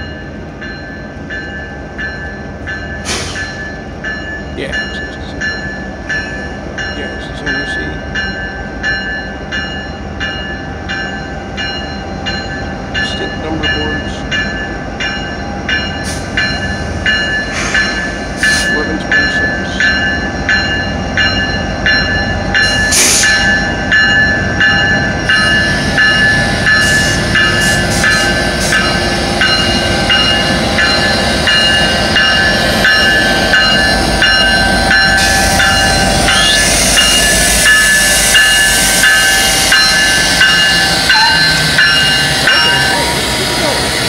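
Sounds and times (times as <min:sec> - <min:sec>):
diesel locomotive engines rumbling: 0:00.0 - 0:44.0
locomotive bell ringing: 0:00.0 - 0:44.0.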